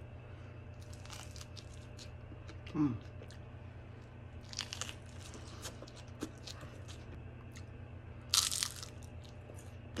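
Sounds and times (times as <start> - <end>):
low steady hum: 0.0 - 10.0
chewing and biting crackles: 0.7 - 3.5, 4.4 - 10.0
loud crunchy bite: 4.4 - 6.6, 8.3 - 9.4.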